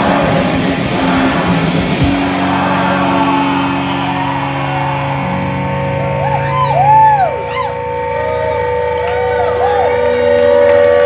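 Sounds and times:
warbling siren-like tone: 0.0 - 8.6
amplified drone: 0.0 - 11.0
band playing: 0.0 - 11.0.

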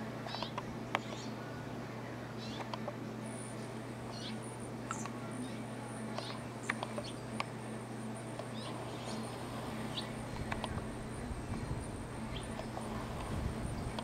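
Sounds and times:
steady low hum: 0.0 - 14.0
bird chirps: 0.3 - 1.4, 2.4 - 2.7, 4.1 - 7.3, 8.5 - 10.2.

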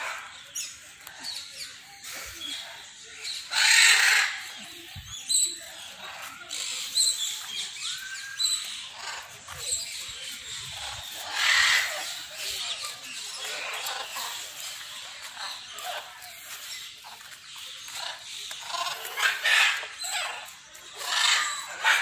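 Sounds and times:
parrots squawking: 3.2 - 4.5, 5.8 - 16.2, 17.9 - 22.0.

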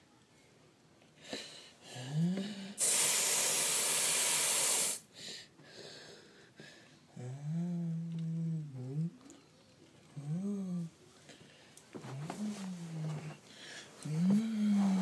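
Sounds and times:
person humming: 1.9 - 3.6, 7.2 - 9.4, 10.1 - 10.9, 12.1 - 13.4, 14.0 - 15.0
aerosol spray can hissing: 2.8 - 5.0.

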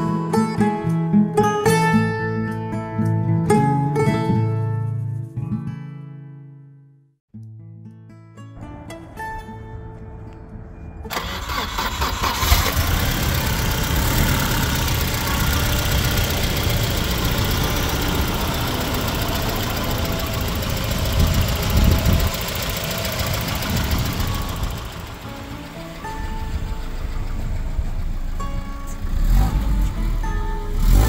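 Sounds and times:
car engine idling: 11.1 - 31.0.

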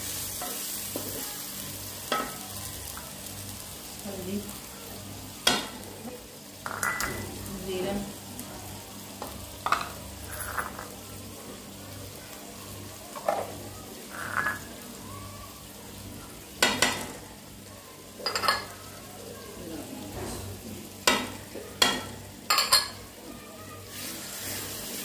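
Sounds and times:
food frying in a pan: 0.0 - 25.0
glass bowls clattering on pan: 6.6 - 7.4, 9.2 - 10.9, 14.1 - 14.7, 16.6 - 17.2, 18.2 - 18.8, 20.2 - 23.0.

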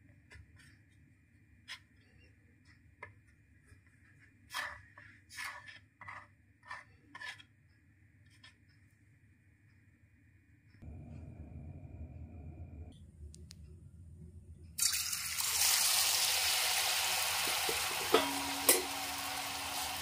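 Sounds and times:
faint background hum: 0.0 - 19.9
fingers rubbing dough: 0.3 - 7.6.

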